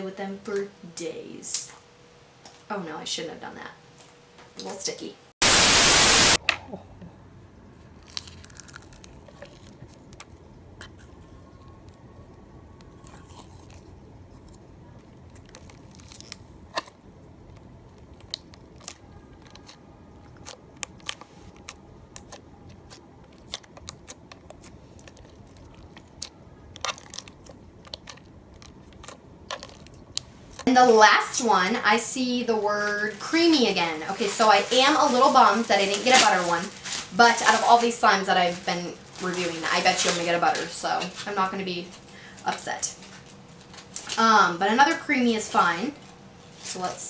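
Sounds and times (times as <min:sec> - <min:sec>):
slime crackling and popping: 0:07.9 - 0:30.7.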